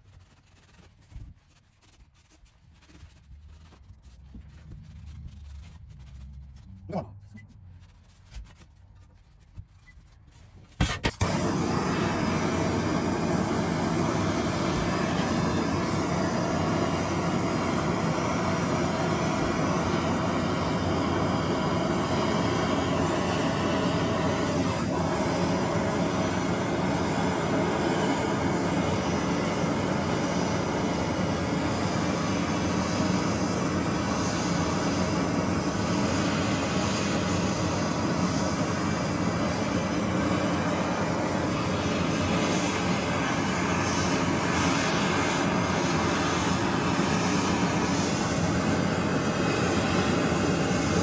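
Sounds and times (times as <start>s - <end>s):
gas torch flame hissing: 10.8s - 51.0s.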